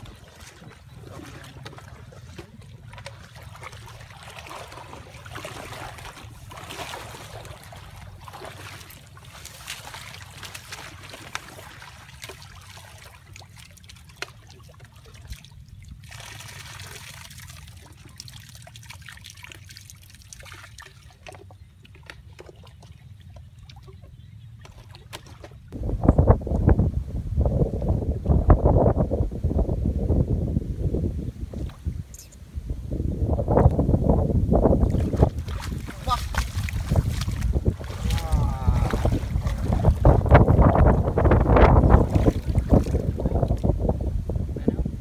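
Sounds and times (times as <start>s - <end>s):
water trickling and sloshing: 0.0s - 25.8s, 33.4s - 44.7s
light splashing: 34.8s - 43.7s.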